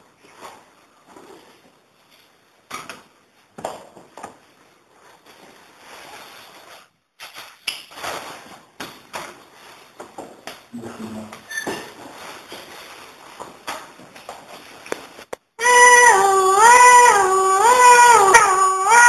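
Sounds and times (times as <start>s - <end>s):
people moving about with scuffs: 11.2s - 15.3s.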